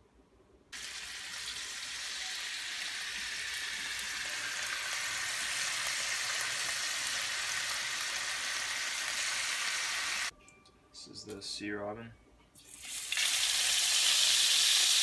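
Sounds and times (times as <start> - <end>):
fish sizzling in oil: 0.8 - 10.3, 12.7 - 15.0.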